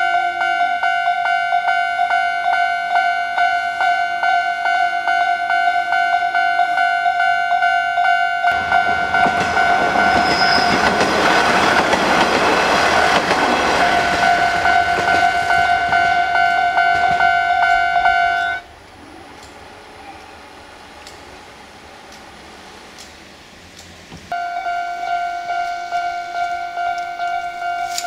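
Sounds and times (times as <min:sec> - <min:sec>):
level crossing warning bell: 0:00.0 - 0:18.7, 0:24.3 - 0:28.0
train wheels rushing: 0:08.5 - 0:24.3.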